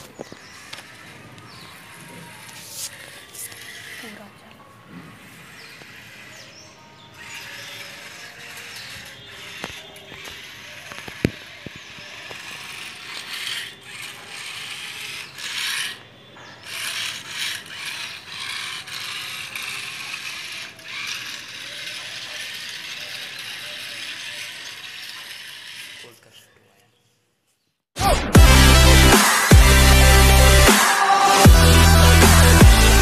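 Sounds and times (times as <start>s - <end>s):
small gear motors running: 0.0s - 26.4s.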